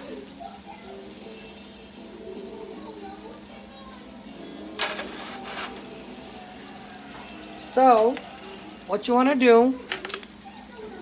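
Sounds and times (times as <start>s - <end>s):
grease sizzling in a frying pan: 0.0s - 11.0s.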